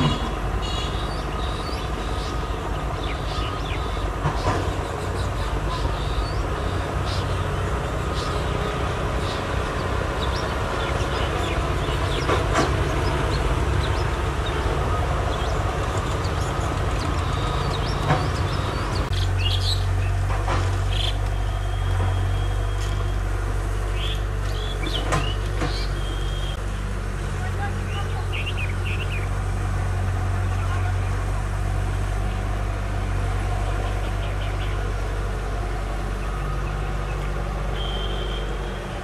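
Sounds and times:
low outdoor rumble: 0:00.0 - 0:39.0
bird chirps: 0:36.2 - 0:38.6.

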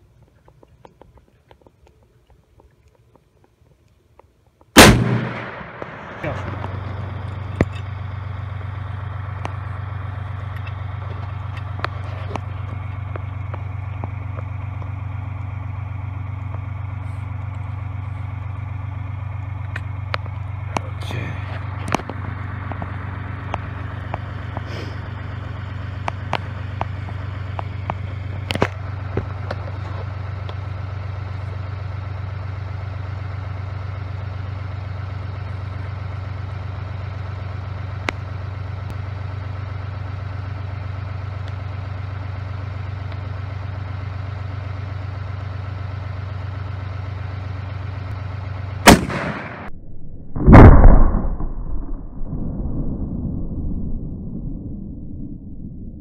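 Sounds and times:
steady low hum: 0:00.0 - 0:56.0
rifle shot: 0:04.8 - 0:07.8, 0:48.8 - 0:52.3
loud boom with low rumble: 0:04.8 - 0:10.5, 0:48.8 - 0:56.0.

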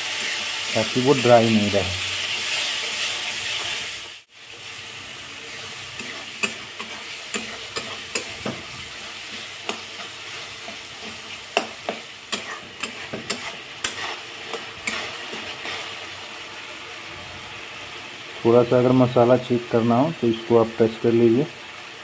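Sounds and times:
food sizzling in a pan: 0:00.0 - 0:22.0
spatula scraping a metal pan: 0:05.4 - 0:16.0.

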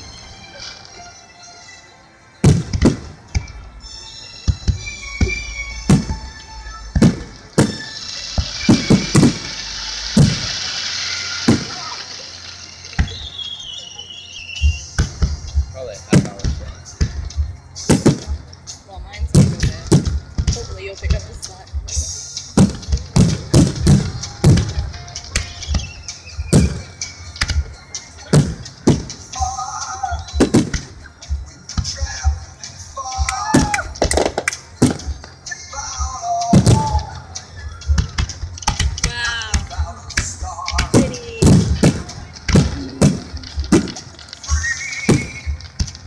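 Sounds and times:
steady hiss: 0:02.1 - 0:46.0
firework shells booming: 0:02.4 - 0:03.6, 0:04.5 - 0:12.2, 0:14.7 - 0:18.6, 0:19.3 - 0:21.4, 0:22.5 - 0:29.4, 0:30.4 - 0:31.1, 0:33.2 - 0:35.4, 0:36.5 - 0:37.2, 0:37.9 - 0:46.0.

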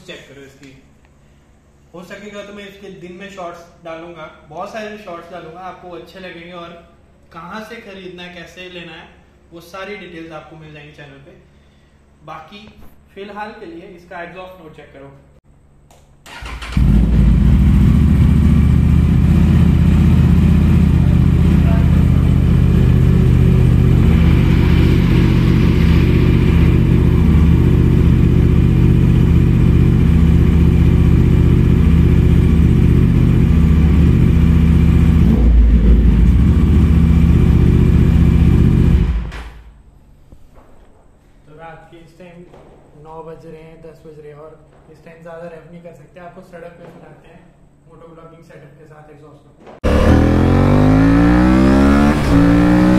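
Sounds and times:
motorcycle engine idling: 0:16.4 - 0:39.3.

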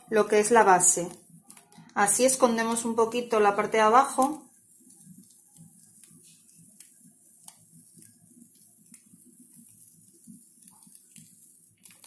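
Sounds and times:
faint irregular clicks: 0:04.2 - 0:12.0.

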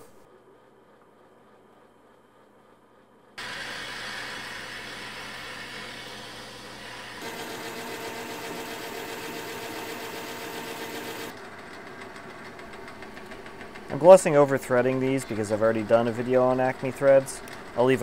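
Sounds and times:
drill boring into metal: 0:03.4 - 0:11.3
metal lathe running: 0:03.4 - 0:11.4.

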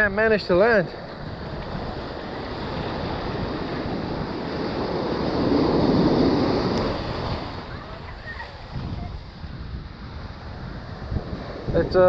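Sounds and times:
ocean waves breaking: 0:00.0 - 0:12.0.

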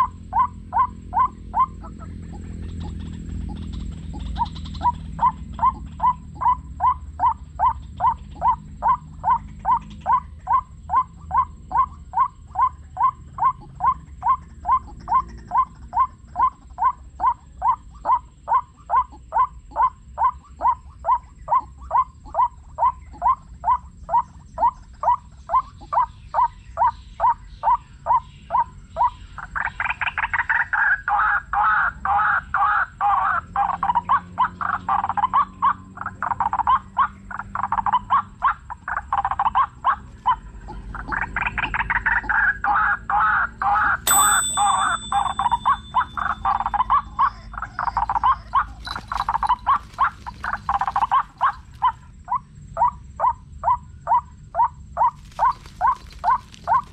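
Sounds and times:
bird call from speaker: 0:42.7 - 0:51.6.

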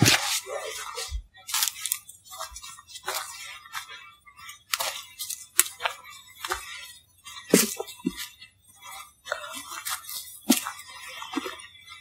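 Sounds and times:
footsteps crunching through dry leaves: 0:00.0 - 0:03.8.

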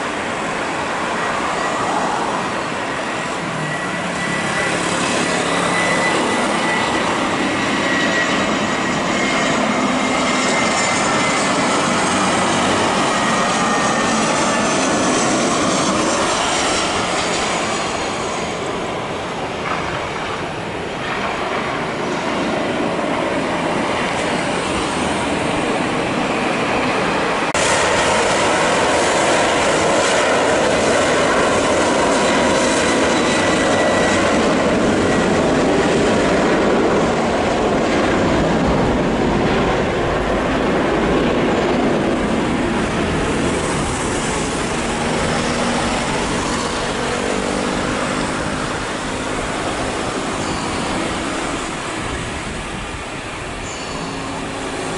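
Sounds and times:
jet engines roaring: 0:00.0 - 0:54.9
faint high whine: 0:43.5 - 0:54.9.

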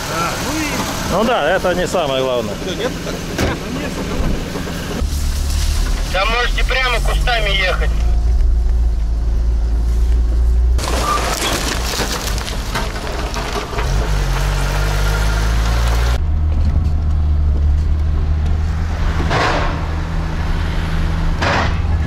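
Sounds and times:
car engine drone: 0:00.0 - 0:22.0
tyre and wind noise on dirt: 0:08.0 - 0:20.4.

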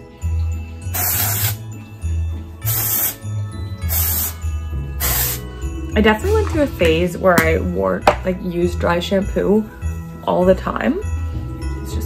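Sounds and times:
background music with bass: 0:00.0 - 0:12.0
aerosol spray hissing: 0:00.9 - 0:01.6, 0:02.6 - 0:05.5.

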